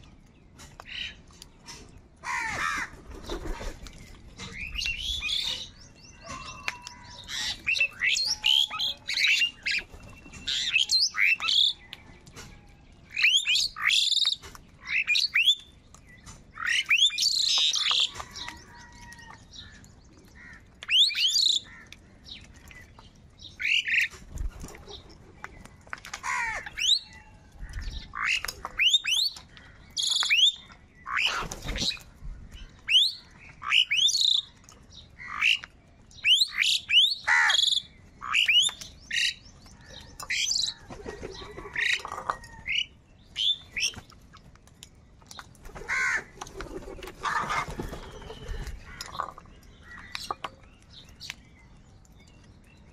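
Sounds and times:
crows cawing: 2.2 - 3.0, 26.2 - 26.8, 37.2 - 37.7, 45.8 - 46.3.

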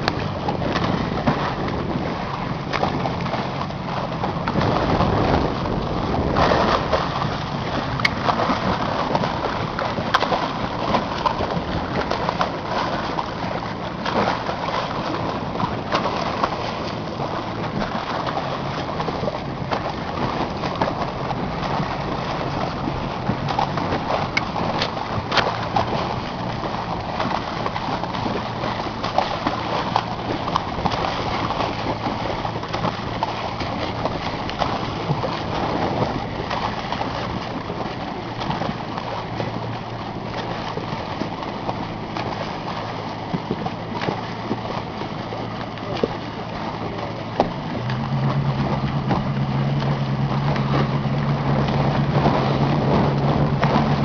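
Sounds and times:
boat motor running: 0.0 - 54.0
short splashes and knocks: 0.0 - 54.0
water washing: 0.0 - 54.0
wind noise: 0.0 - 54.0.

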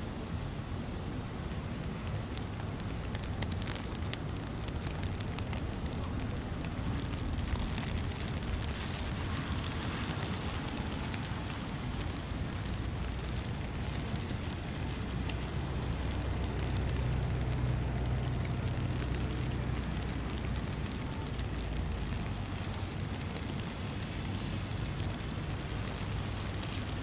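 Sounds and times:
street traffic noise: 0.0 - 27.0
vehicle engine hum: 2.2 - 27.0.

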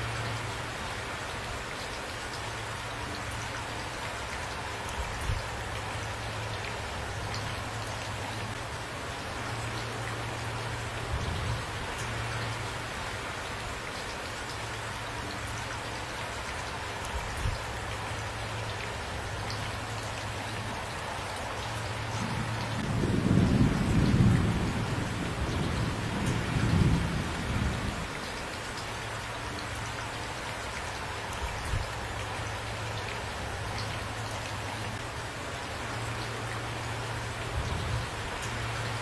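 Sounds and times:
rain falling: 0.0 - 39.0
rolling thunder: 22.2 - 28.1.

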